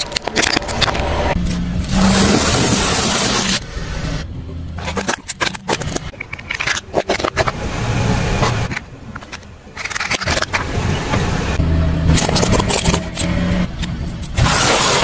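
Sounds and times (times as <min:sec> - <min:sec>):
plastic toys cracking: 0:04.8 - 0:07.6, 0:08.7 - 0:10.7.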